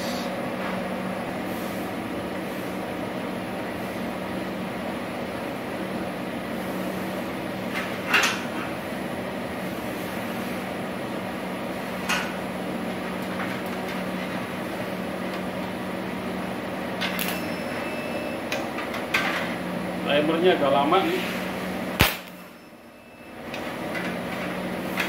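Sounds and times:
welding machine hum: 0.0 - 25.0
spot welder crackling snaps: 22.0 - 22.4.

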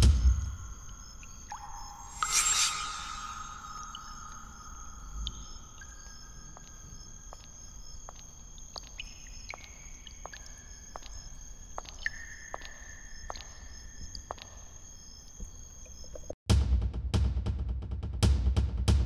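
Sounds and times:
sustained high tones: 1.7 - 7.4.

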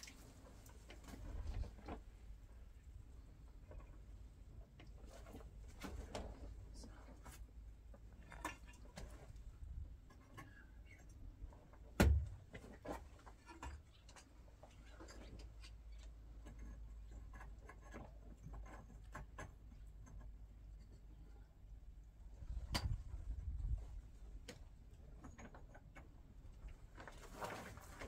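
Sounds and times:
concrete blocks laid in mortar: 7.3 - 28.0.

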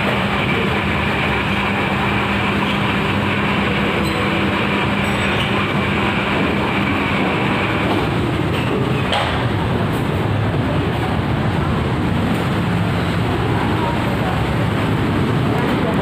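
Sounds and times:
ventilation fans rushing: 0.0 - 16.0.

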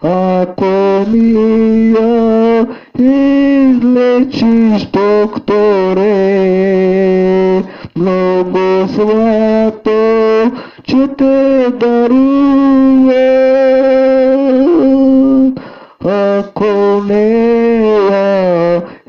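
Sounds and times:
man singing into microphone: 0.0 - 19.0.

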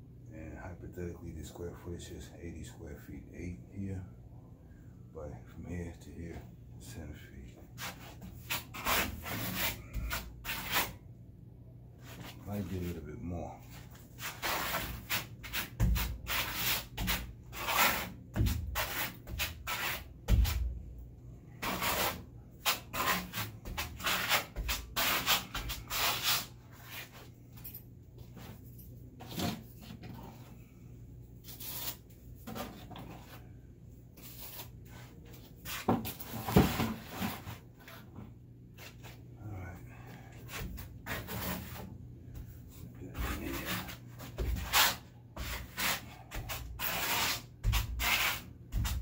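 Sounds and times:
hand tool scraping a wall: 7.8 - 11.0, 13.7 - 20.7, 21.5 - 27.3, 31.4 - 33.5, 34.2 - 39.2, 40.2 - 49.0.

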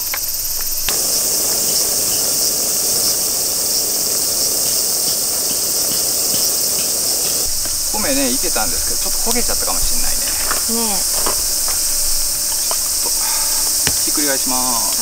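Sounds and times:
insects chirping: 0.0 - 15.0
rice bubbling and spitting: 0.0 - 15.0.

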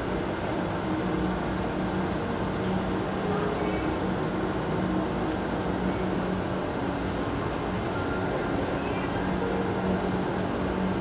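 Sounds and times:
faint crowd voices: 2.2 - 11.0.

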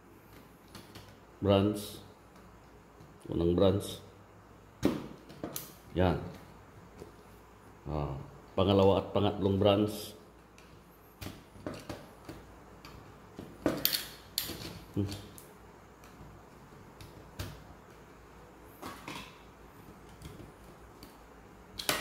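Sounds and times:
plastic circuit breakers clicking: 4.8 - 7.1, 10.5 - 18.0, 18.8 - 22.0.

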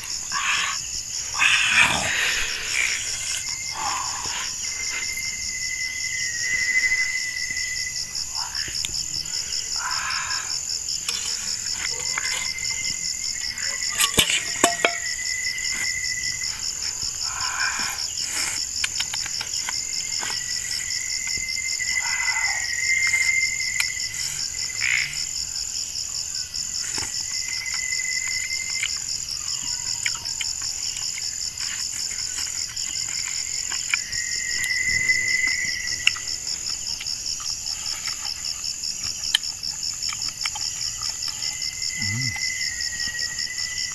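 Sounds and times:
frogs calling: 0.0 - 25.6, 32.2 - 39.8, 40.4 - 43.9
crickets trilling: 0.0 - 43.9.

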